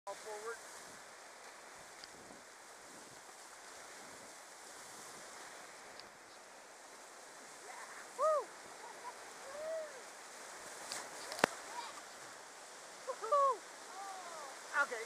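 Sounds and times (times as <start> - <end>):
river rapids rushing: 3.5 - 15.0.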